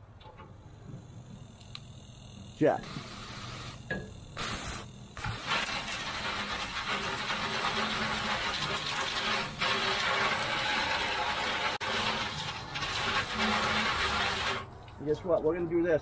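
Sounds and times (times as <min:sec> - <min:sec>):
water spray hitting metal grill: 0:04.4 - 0:14.8.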